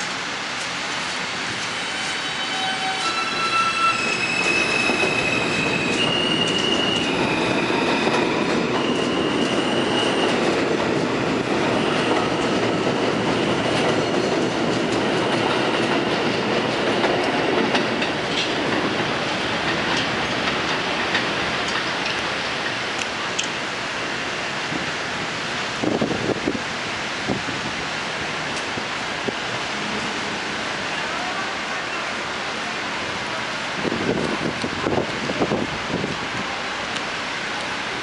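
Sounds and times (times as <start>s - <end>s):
wheels rumbling on rail: 0.0s - 38.0s
rail joints clicking: 4.4s - 23.6s.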